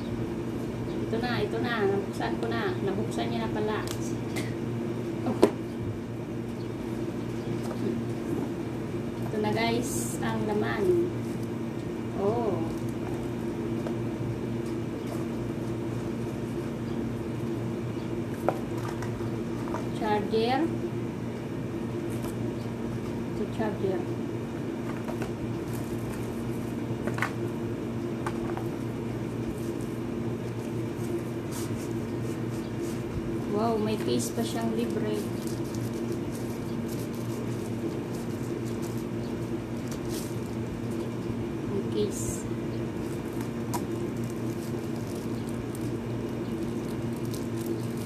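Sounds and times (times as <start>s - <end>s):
low machine hum: 0.0s - 48.0s
packaging rustling and clicking: 34.8s - 41.2s, 43.0s - 48.0s.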